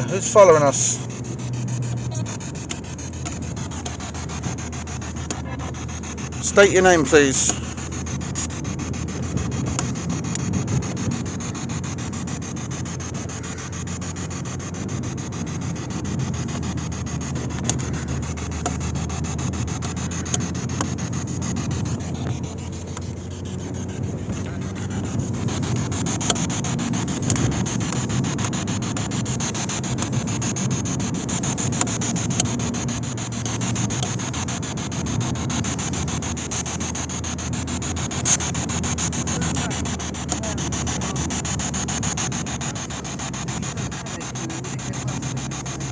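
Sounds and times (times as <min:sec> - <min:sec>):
low rumble inside moving car: 0:00.0 - 0:45.9
microphone rubbing against clothing: 0:00.0 - 0:45.9.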